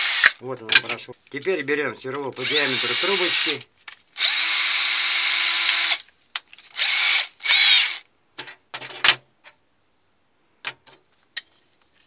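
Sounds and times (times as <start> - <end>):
electric drill motor whine: 0.0 - 0.4, 2.4 - 3.6, 4.2 - 6.0, 6.8 - 8.0.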